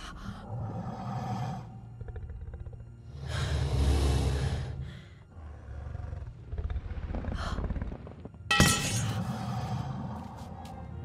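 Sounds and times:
sharp metallic clang: 8.5s - 9.2s.

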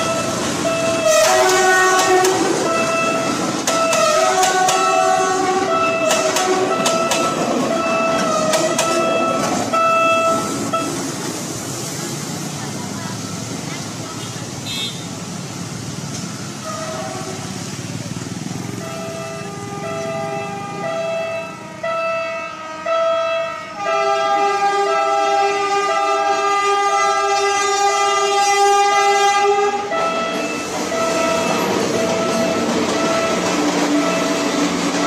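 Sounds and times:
rumble of rolling train: 0.0s - 35.0s
train air horn: 0.8s - 11.0s, 16.6s - 17.5s, 18.9s - 31.6s.

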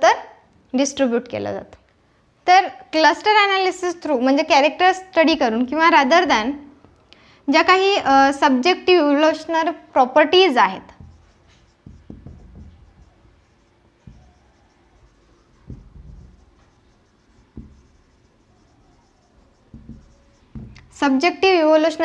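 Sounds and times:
marker scratching on whiteboard: 10.8s - 22.0s
soft knock of marker: 10.9s - 21.0s.

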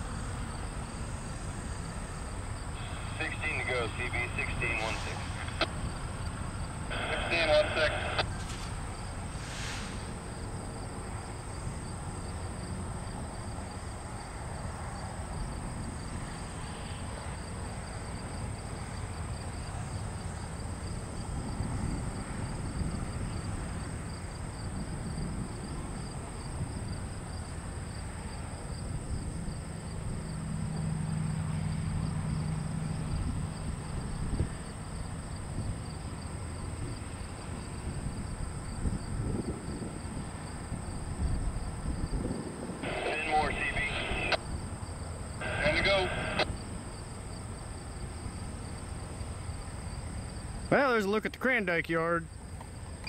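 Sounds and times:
insects chirping rhythmically: 0.1s - 9.3s, 42.8s - 51.4s.

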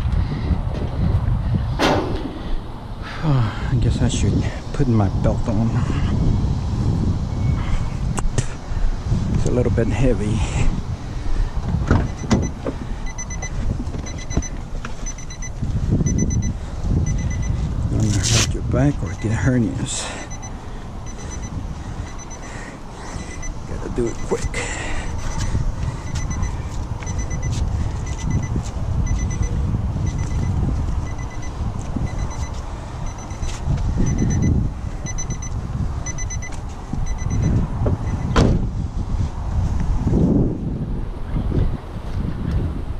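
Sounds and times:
wind rumble on microphone: 0.0s - 42.9s
door knocks and handling: 11.8s - 12.5s
door-open warning chime beeps: 12.0s - 17.5s, 20.0s - 38.4s.

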